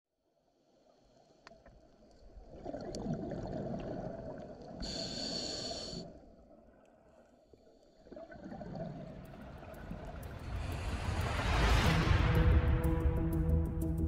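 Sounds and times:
exhaled bubbles rumbling: 2.5s - 4.8s, 8.1s - 12.2s
regulator inhalation hiss: 4.8s - 6.2s
faint clicks: 6.8s - 11.9s.

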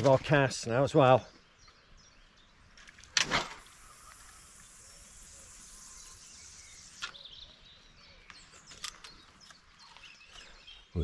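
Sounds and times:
fishing line hissing off reel: 3.3s - 7.2s
faint bird chirps: 3.7s - 11.0s.

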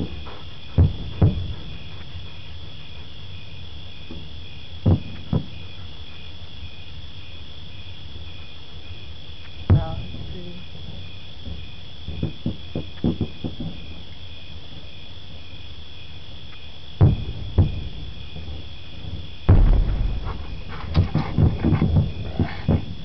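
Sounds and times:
fireworks booming: 0.0s - 2.0s, 4.2s - 5.7s, 17.0s - 23.0s
crickets chirping: 0.0s - 23.0s
fireworks crackling pops: 19.2s - 23.0s.

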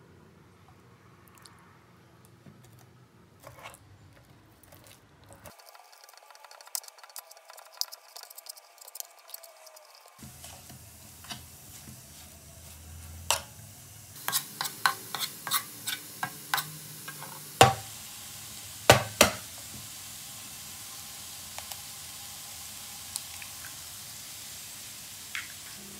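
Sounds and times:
spoon clicking and scraping pan: 3.4s - 11.5s, 14.2s - 17.8s
wooden spoon stirring in a pan: 3.4s - 13.5s, 14.2s - 17.8s
faint sizzle: 4.8s - 25.9s
spoon knocking on pan: 16.2s - 17.9s, 18.9s - 19.4s.

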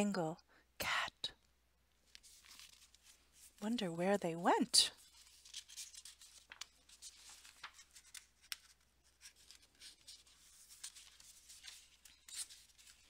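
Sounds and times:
book pages rustling: 2.0s - 3.6s, 5.0s - 13.0s.

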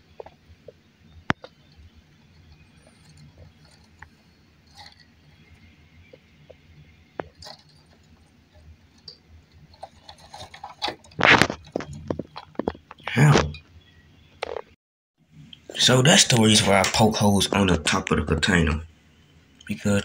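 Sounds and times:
faint clicks and taps: 0.1s - 5.1s, 6.1s - 13.6s
loud rustling and knocking: 9.7s - 13.6s.

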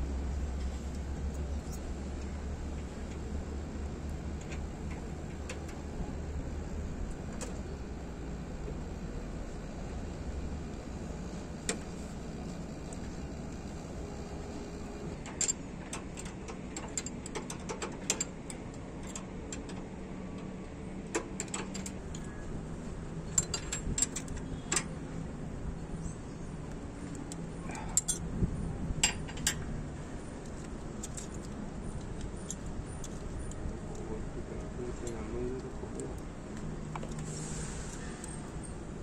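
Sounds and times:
metal tools clinking: 27.8s - 28.2s.

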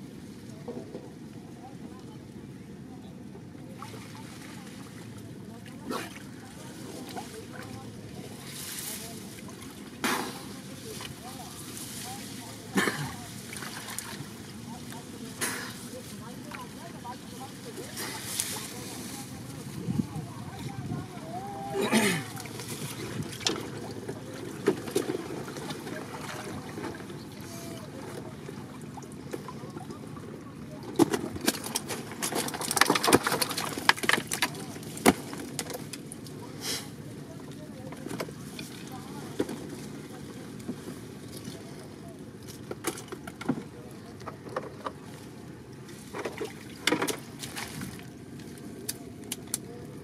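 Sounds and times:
wind on microphone: 19.5s - 21.5s.

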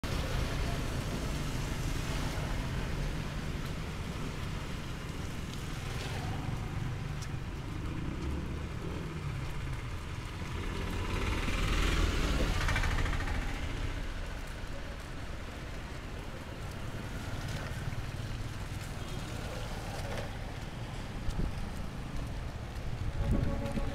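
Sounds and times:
traffic on wet road: 0.0s - 23.9s
vehicle passing: 5.6s - 14.6s.

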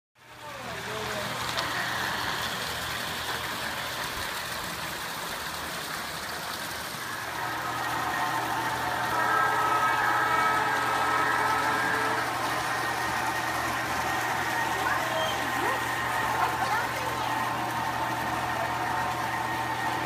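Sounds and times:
model locomotive mechanical hum: 0.2s - 20.0s
locomotive whine: 1.4s - 4.0s, 7.0s - 20.0s.

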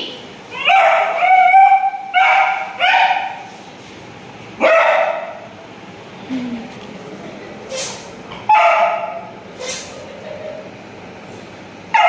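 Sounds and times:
puppy barking: 0.6s - 3.5s, 4.6s - 5.4s, 7.8s - 10.5s.

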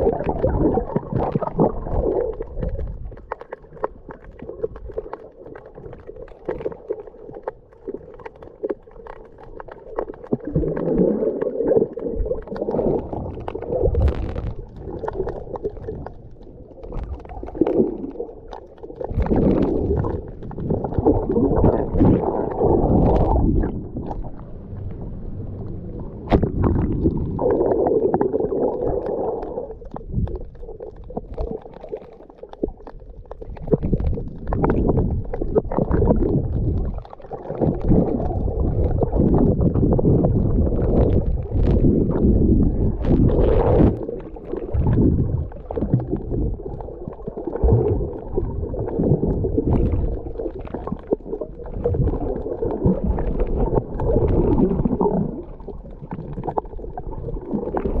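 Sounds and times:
underwater rumbling and gurgling: 0.0s - 58.0s.

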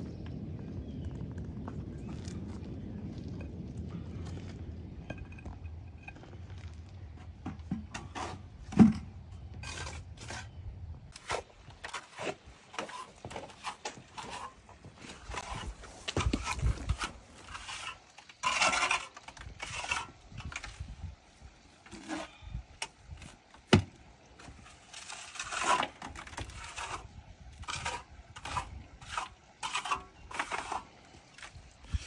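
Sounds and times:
scraping and rubbing: 5.0s - 20.9s, 21.9s - 22.4s, 24.4s - 32.0s.

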